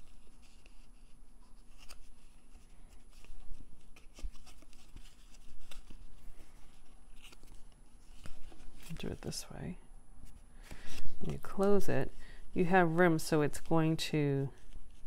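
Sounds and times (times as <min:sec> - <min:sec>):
cardstock rubbing and rustling: 0:00.0 - 0:09.4.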